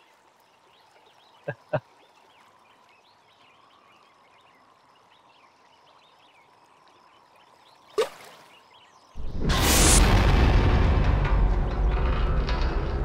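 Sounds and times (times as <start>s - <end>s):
faint birds chirping: 0.0s - 9.2s
object splashing into water: 7.9s - 8.5s.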